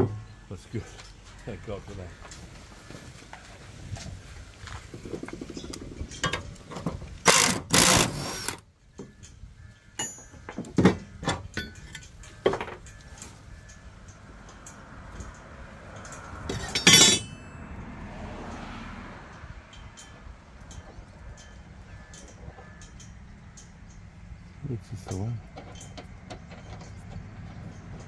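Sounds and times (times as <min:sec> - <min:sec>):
tools clanking on steel deck: 0:00.0 - 0:01.0, 0:06.1 - 0:09.2, 0:10.0 - 0:13.4, 0:16.1 - 0:17.6, 0:25.0 - 0:28.0.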